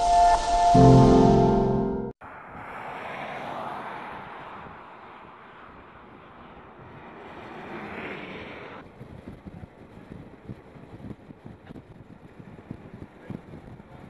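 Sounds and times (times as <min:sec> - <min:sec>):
vehicles driving past: 0:02.2 - 0:09.0.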